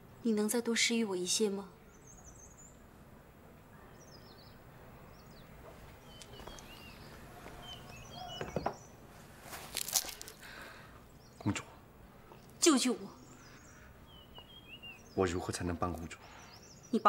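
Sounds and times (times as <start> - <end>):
low background hush: 0.0 - 17.0
small birds chirping: 0.0 - 17.0.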